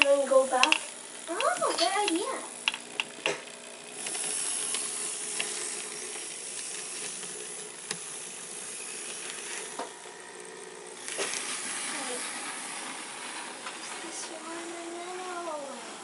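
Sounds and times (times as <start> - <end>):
model train motor hiss: 0.0 - 16.0.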